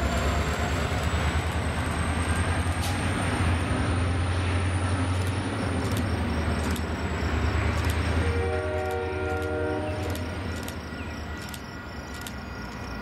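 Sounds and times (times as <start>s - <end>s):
diesel locomotive engine drone: 0.0s - 13.0s
rail noise: 0.0s - 13.0s
sharp clicks: 5.1s - 6.9s, 7.7s - 8.0s, 8.8s - 10.8s.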